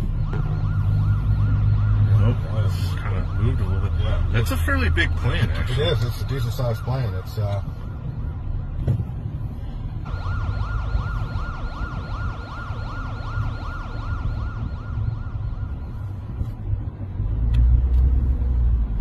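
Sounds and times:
siren in yelp mode: 0:00.0 - 0:08.6, 0:10.0 - 0:16.6
steady low rumble: 0:07.6 - 0:19.0.

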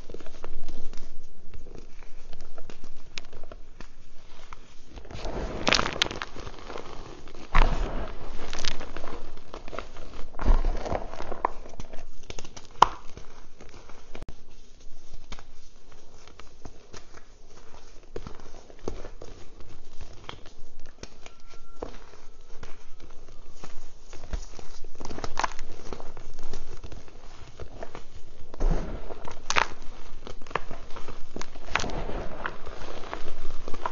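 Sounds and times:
chalk crunching in hands: 0:03.9 - 0:14.0, 0:16.8 - 0:33.9
powder sifting into plastic tub: 0:04.2 - 0:12.2, 0:22.0 - 0:33.9.

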